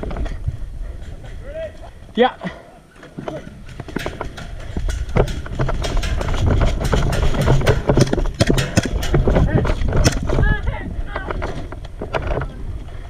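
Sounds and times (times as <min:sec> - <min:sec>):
wind rumbling on microphone: 0:00.0 - 0:02.2, 0:03.3 - 0:13.0.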